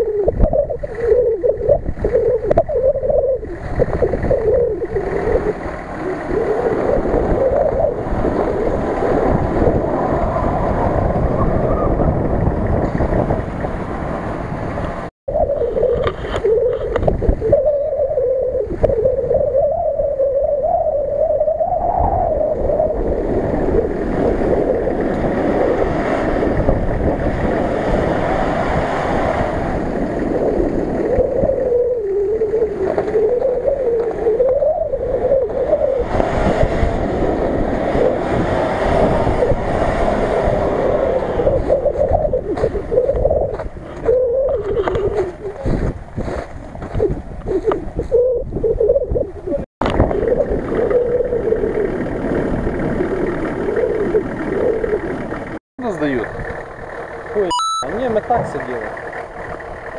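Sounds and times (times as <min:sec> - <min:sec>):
off-road vehicle engine under load: 0:00.0 - 0:59.9
wind buffeting microphone: 0:00.0 - 0:59.9.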